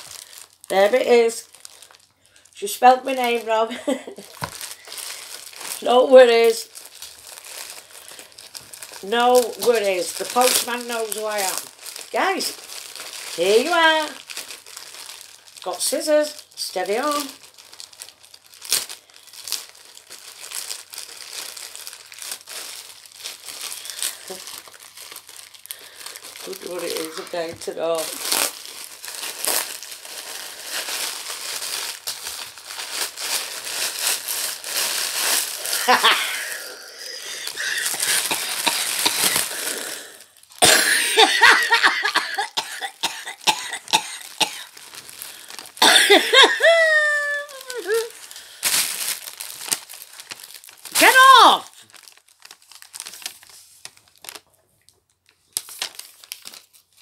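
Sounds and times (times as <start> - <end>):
gift wrap crinkling: 0.0 - 57.0
woman coughing: 37.4 - 39.5, 40.6 - 44.7, 45.8 - 47.9.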